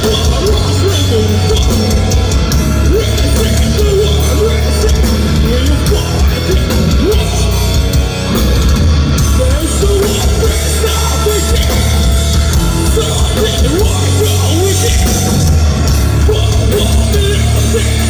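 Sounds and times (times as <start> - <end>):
person singing: 0.0 - 8.1, 9.2 - 18.0
bass guitar: 0.0 - 18.0
drums: 0.0 - 18.0
electric guitars: 0.0 - 18.0.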